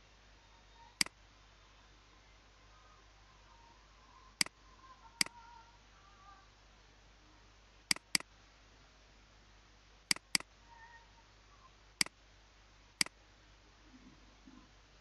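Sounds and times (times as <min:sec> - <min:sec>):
faint steady hum: 0:00.0 - 0:15.0
mouse button clicking: 0:07.9 - 0:08.2, 0:10.1 - 0:10.5.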